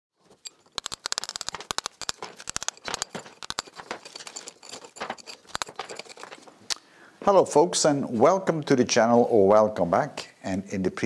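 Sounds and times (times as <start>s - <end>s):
chisel raking out mortar: 0.2s - 6.5s.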